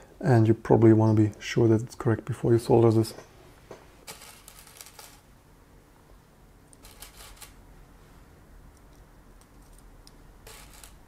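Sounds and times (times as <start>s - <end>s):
small clicks and scratches: 4.1s - 5.2s, 6.7s - 7.6s, 8.7s - 11.0s.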